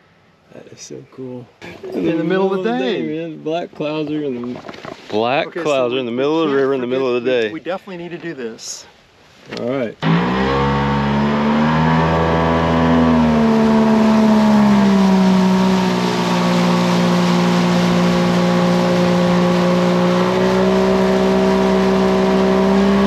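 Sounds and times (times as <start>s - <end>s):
outboard motor: 10.0s - 23.0s.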